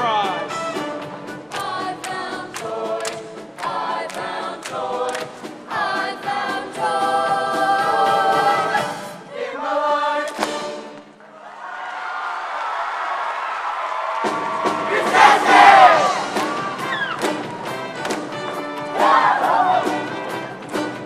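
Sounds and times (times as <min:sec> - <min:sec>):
choir singing with band: 0:01.3 - 0:11.1, 0:14.2 - 0:17.6, 0:18.9 - 0:20.4.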